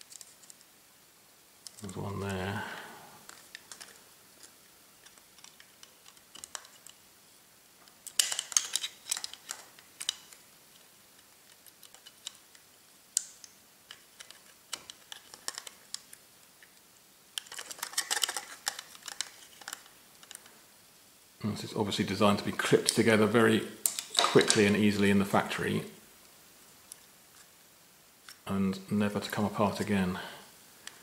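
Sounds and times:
plastic clicks and scraping: 1.6 - 1.9, 3.2 - 7.0, 7.8 - 16.8, 17.4 - 20.5.

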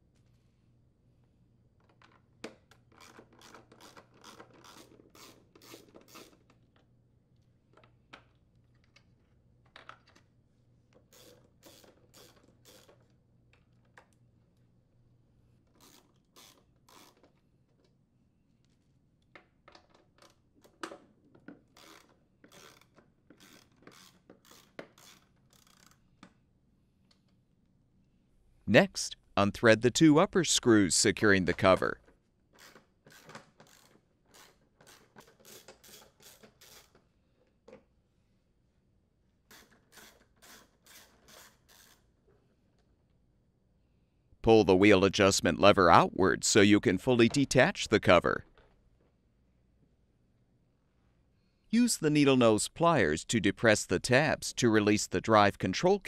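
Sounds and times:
ratchet wrench clicking: 15.8 - 17.2, 21.8 - 26.0, 32.6 - 36.9.

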